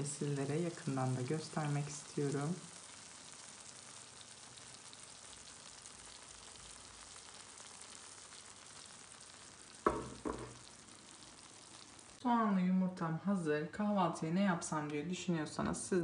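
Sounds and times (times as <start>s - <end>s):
onions and eggs sizzling: 0.0s - 12.4s
pan knocking on hotplate: 9.8s - 10.7s.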